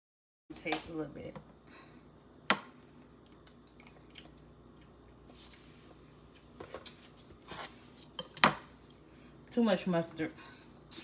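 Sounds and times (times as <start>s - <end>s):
small kitchen clicks and smacks: 2.4s - 4.4s.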